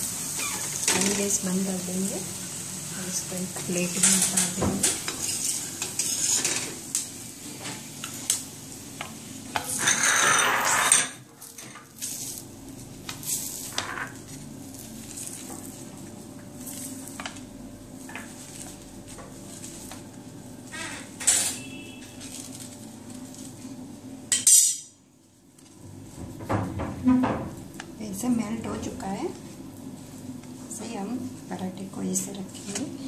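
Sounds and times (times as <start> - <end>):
spatula scraping griddle: 3.8 - 6.8, 9.5 - 12.4.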